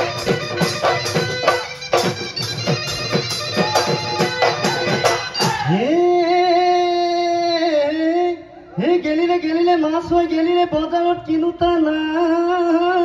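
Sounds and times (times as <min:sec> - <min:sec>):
drums beaten quickly: 0:00.0 - 0:05.9.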